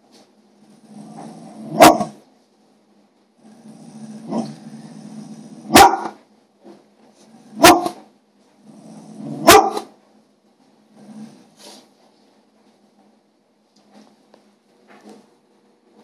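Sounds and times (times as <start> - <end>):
dog grumbling: 0.7 - 2.2, 3.4 - 6.0, 8.6 - 9.7, 10.9 - 11.8
large dog barking: 1.6 - 2.2, 5.6 - 6.2, 7.5 - 8.0, 9.3 - 10.0.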